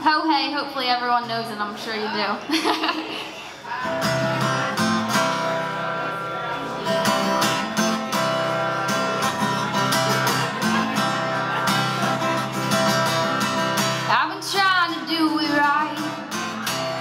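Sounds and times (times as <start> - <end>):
acoustic guitar strumming chords: 3.8 - 17.0.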